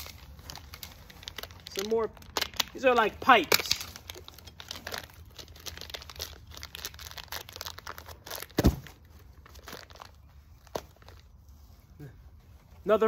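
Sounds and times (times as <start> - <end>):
plastic packaging crinkling: 0.0 - 11.4
dull thump: 8.6 - 8.9.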